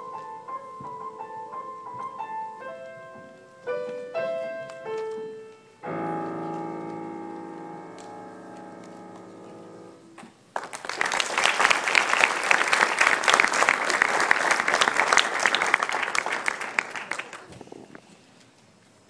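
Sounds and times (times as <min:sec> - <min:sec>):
piano chord: 0:00.0 - 0:10.2
audience applause: 0:10.6 - 0:17.6.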